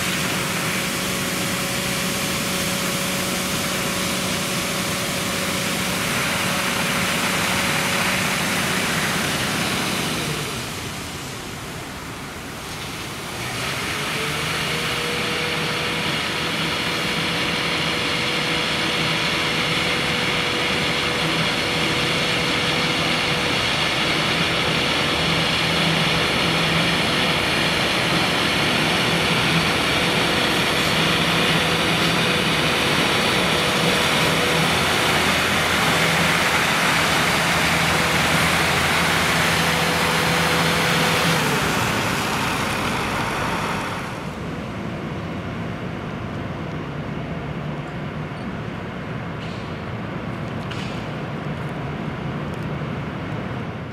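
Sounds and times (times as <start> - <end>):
water jets hissing: 0.0 - 44.4
truck engines running: 0.0 - 53.9
steady hum: 15.2 - 50.4.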